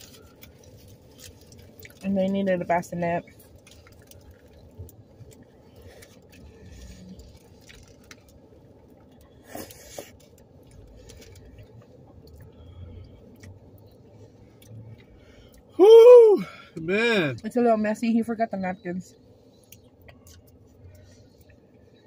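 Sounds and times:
foil wrappers crinkling: 0.0 - 8.4.

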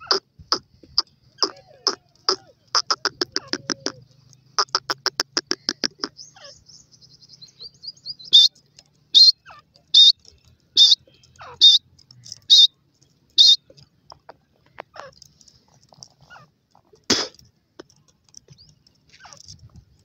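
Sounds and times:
francolins calling: 0.0 - 13.9, 14.6 - 16.6.

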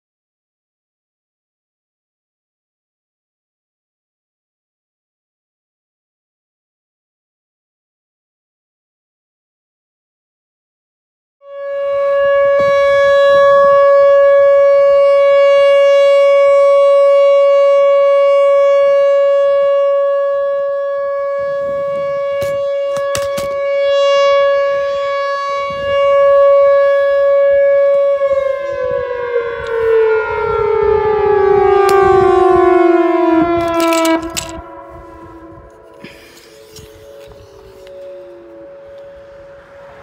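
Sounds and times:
warning siren: 11.4 - 40.0.

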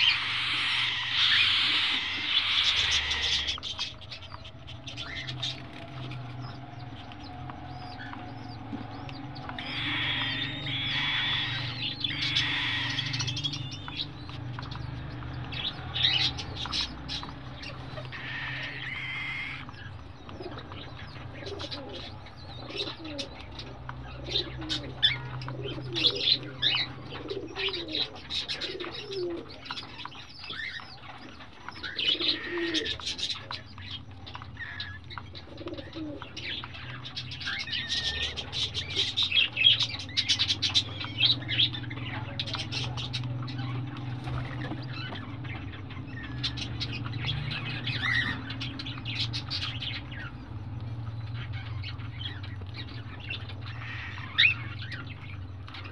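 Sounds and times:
chicks cheeping: 0.0 - 55.9
steady low hum: 0.0 - 55.9.

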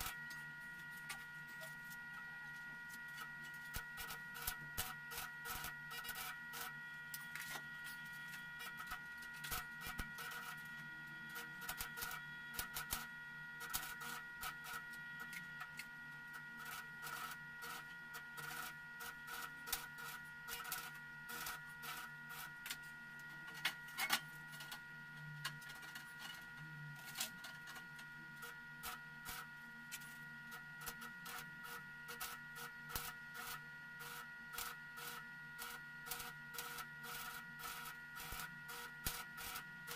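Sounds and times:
high electrical whine: 0.0 - 39.9
welding arc crackling and popping: 3.7 - 7.6, 8.6 - 10.7, 11.3 - 15.9, 16.6 - 22.8, 28.4 - 39.9.

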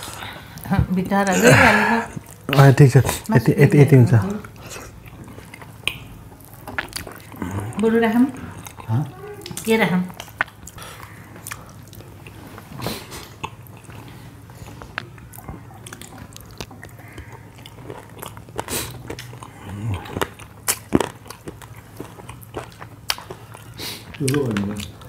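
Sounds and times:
chewing and mouth smacks: 4.2 - 25.0
fingers squishing sticky food: 14.8 - 25.0.

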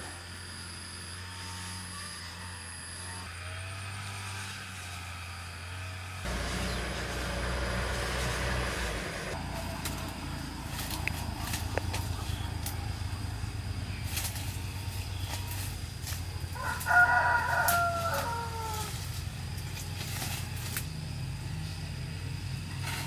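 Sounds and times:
steady low hum: 6.2 - 16.6
rooster crowing: 16.5 - 19.1.

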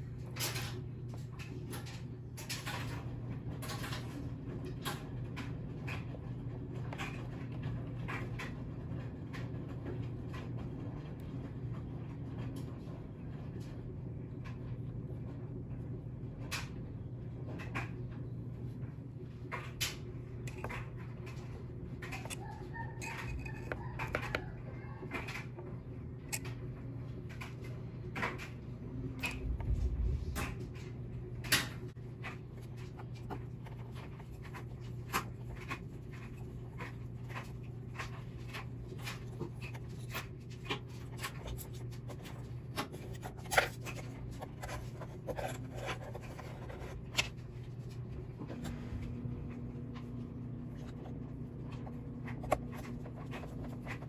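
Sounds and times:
steady low hum: 0.0 - 54.0
parts being handled: 19.9 - 48.8, 50.6 - 54.0.

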